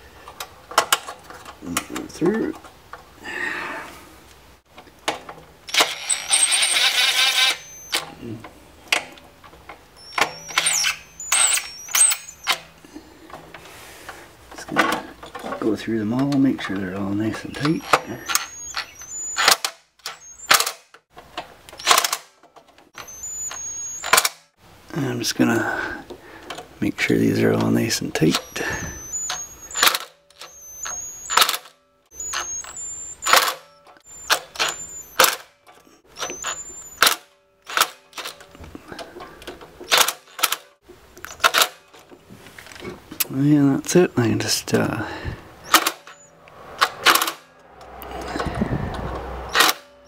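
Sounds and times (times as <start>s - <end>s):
drill clutch clicking: 5.7s - 8.1s, 10.0s - 12.7s, 16.2s - 20.8s, 27.6s - 35.5s
drill-driver bursts: 5.7s - 8.2s, 10.0s - 12.8s, 17.5s - 20.9s, 21.8s - 22.3s, 23.0s - 24.5s, 27.7s - 35.5s, 36.1s - 38.4s, 45.6s - 46.3s, 49.4s - 49.9s.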